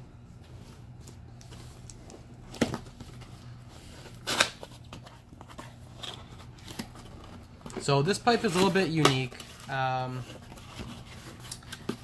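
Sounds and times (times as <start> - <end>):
low steady hum: 0.0 - 12.0
cardboard rustle: 2.5 - 12.0.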